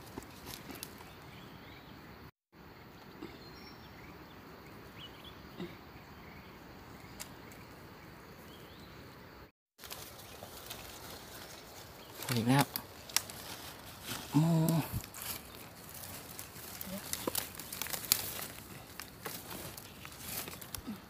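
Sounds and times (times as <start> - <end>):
forest background hiss: 0.0 - 21.0
mushrooms rustling in basket: 9.8 - 21.0.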